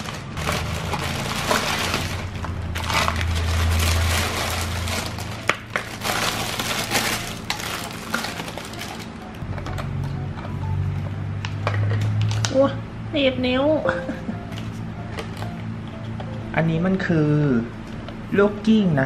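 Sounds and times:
plastic and cellophane crinkling: 0.0 - 9.8.

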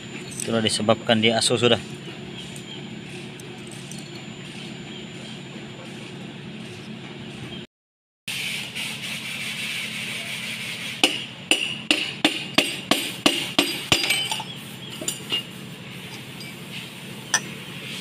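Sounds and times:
sharp metallic clinks: 0.0 - 5.6, 13.6 - 17.6
steady low hum: 0.0 - 7.7.

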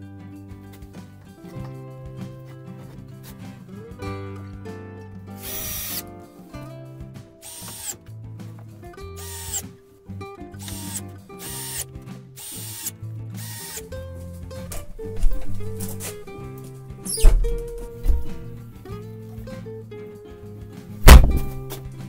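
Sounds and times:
cordless drill driving screws: 5.4 - 6.0, 7.4 - 8.0, 9.2 - 9.7, 10.6 - 13.9.

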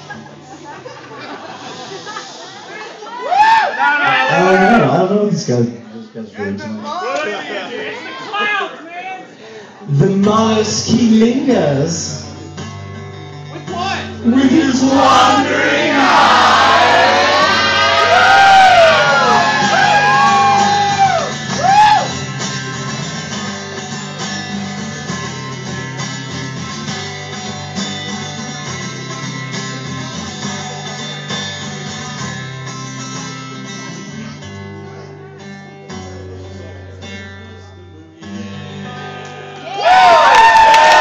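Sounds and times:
acoustic guitar strummed and picked: 9.9 - 39.6
person singing: 14.2 - 16.3
audience cheering and applause: 15.0 - 22.2, 39.4 - 41.0.

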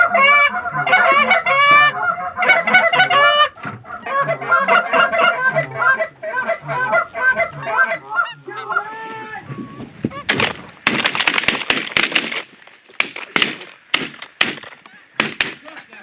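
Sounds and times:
geese honking: 0.0 - 10.5, 14.7 - 15.9
shotgun fire: 10.3 - 15.8.

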